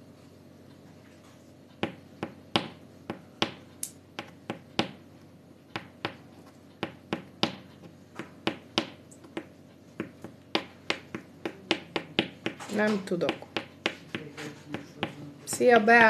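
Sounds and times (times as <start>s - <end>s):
fingernails tapping on table: 1.8s - 3.6s, 5.8s - 16.0s.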